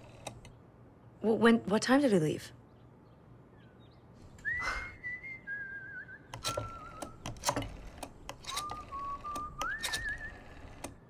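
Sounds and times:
sharp clicks: 0.0 - 0.6, 6.3 - 11.0
person whistling a melody: 4.4 - 7.0, 8.5 - 10.4.

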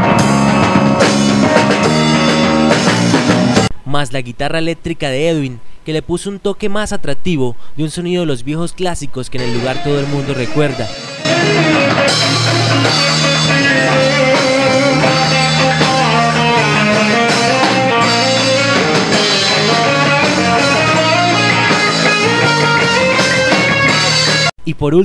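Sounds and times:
drum kit: 0.0 - 3.7, 9.4 - 24.5
electric guitar melodic line: 0.0 - 3.7, 9.4 - 24.5.

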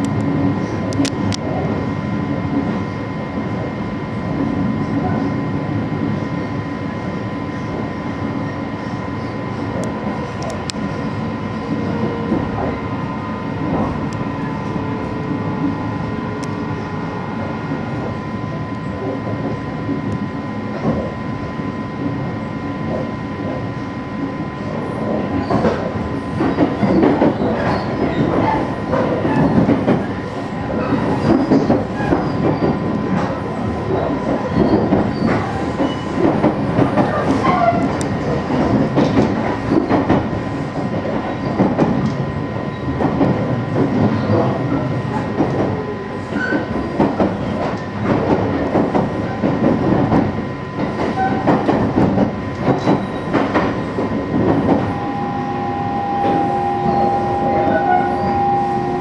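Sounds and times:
train wheels rumbling on rail: 0.0 - 59.0
constant high hum: 50.1 - 59.0.

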